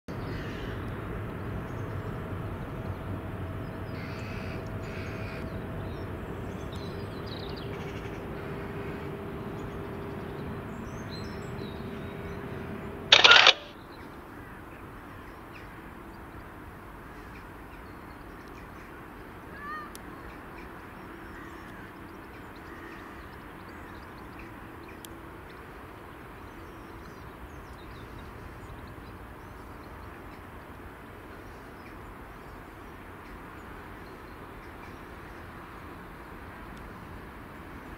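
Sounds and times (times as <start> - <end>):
steady low rumble: 0.1 - 14.3
loud harsh sound: 4.1 - 13.7.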